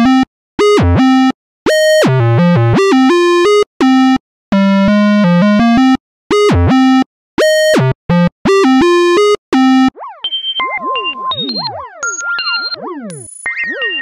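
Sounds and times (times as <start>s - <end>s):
synthesizer falling pitch glides: 9.6s - 14.0s.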